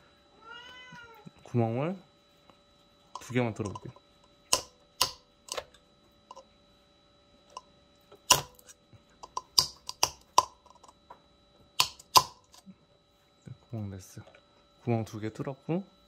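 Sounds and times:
pin clicking on eggshells: 9.2s - 10.5s.

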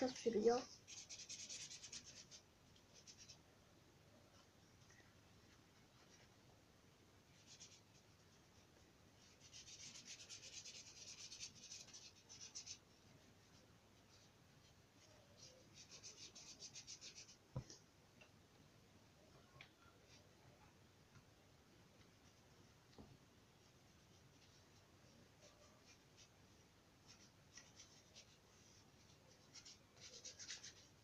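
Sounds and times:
paintbrush scrubbing on paper: 0.0s - 3.4s, 7.3s - 17.4s, 23.6s - 31.0s.

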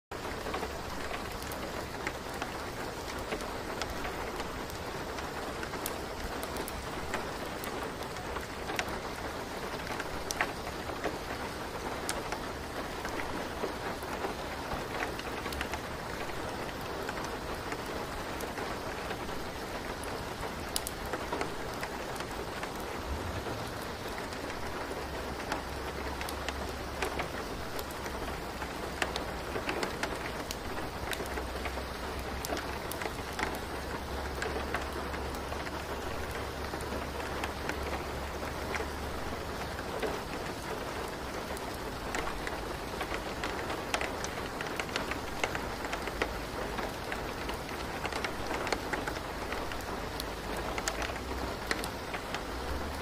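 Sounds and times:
steady rain hiss: 0.1s - 53.0s
raindrop clicks: 0.2s - 53.0s
low rumble: 23.0s - 24.0s.

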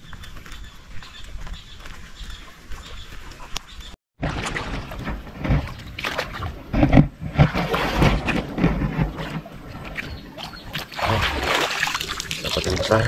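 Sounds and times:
hands sloshing in muddy water: 4.2s - 13.0s.

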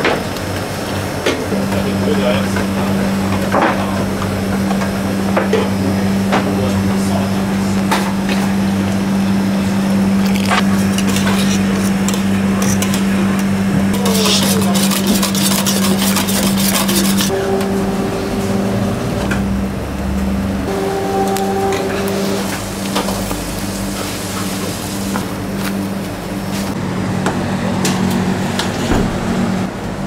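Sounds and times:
low hum: 1.1s - 14.2s, 15.0s - 30.0s
whisk scraping metal saucepan: 10.6s - 13.1s, 14.0s - 17.6s.

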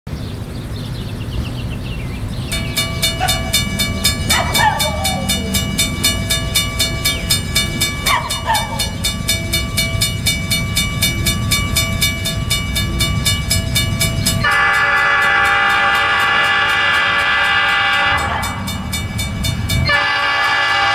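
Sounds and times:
crossing signal bell ringing: 2.4s - 20.9s
locomotive air horn: 14.4s - 18.9s, 19.8s - 20.9s.

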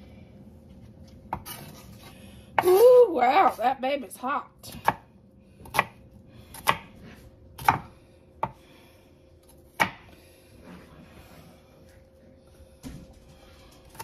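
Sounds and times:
knife chopping on wooden board: 5.6s - 7.0s, 7.6s - 8.6s, 9.8s - 10.1s.

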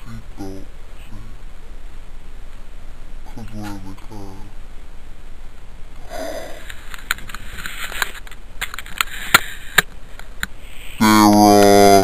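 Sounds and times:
person sniffing: 6.0s - 6.8s
light rustling: 6.6s - 11.0s.

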